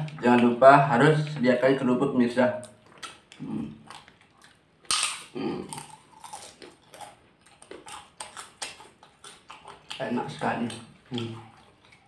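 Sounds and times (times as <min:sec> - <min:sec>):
cracker crunching: 0:02.6 - 0:12.0
crunchy chewing: 0:02.6 - 0:12.0
wet mouth sounds: 0:02.6 - 0:12.0
person humming: 0:05.4 - 0:05.7.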